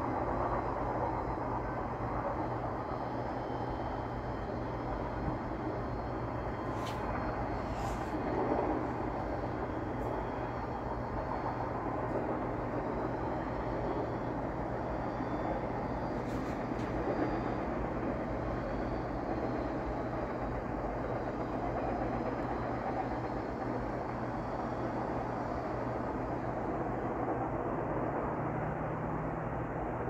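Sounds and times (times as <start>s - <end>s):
freight train rolling on rails: 0.0s - 30.0s.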